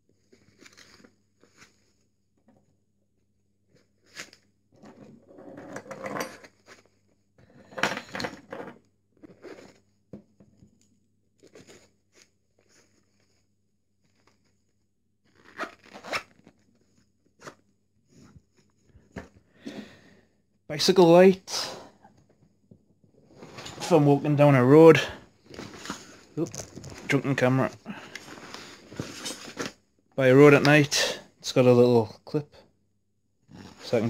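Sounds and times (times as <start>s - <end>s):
fabric pouch ripping and rustling: 11.4s - 17.6s, 25.4s - 27.1s.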